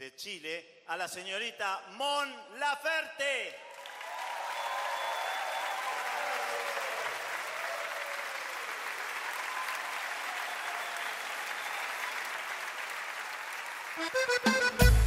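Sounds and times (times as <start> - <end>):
audience applauding: 3.7 - 15.0.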